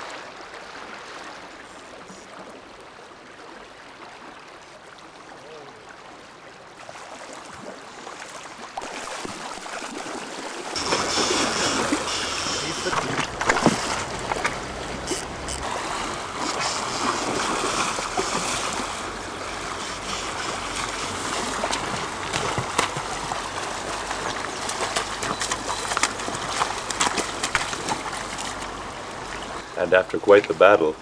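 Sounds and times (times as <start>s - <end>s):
river running over stones: 0.0s - 31.0s
fish splashing: 6.8s - 29.6s.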